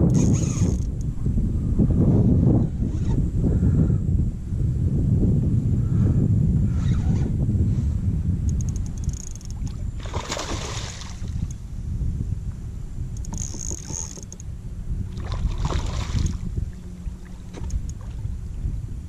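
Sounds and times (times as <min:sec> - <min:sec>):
wind rumble on microphone: 0:00.0 - 0:19.0
fish splashing in water: 0:10.0 - 0:11.5.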